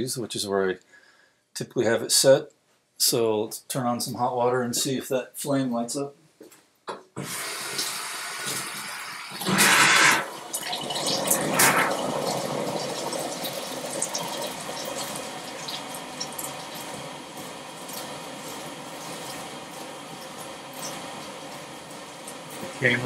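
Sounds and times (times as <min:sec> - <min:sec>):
tap water running: 0:07.2 - 0:23.0.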